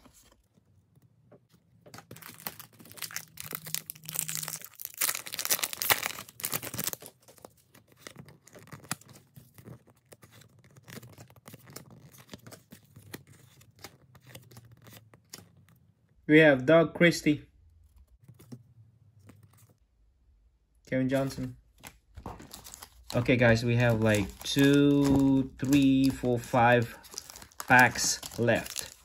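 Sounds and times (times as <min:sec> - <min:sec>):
cards clicking and rustling: 0:00.0 - 0:15.8, 0:17.9 - 0:19.8, 0:21.2 - 0:29.0
foil wrapper tearing and crinkling: 0:02.0 - 0:15.7, 0:22.2 - 0:29.0.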